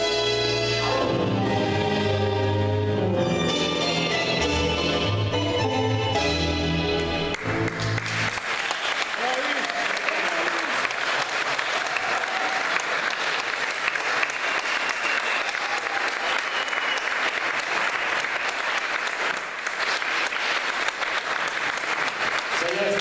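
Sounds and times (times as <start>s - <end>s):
audience applauding: 6.9s - 23.0s.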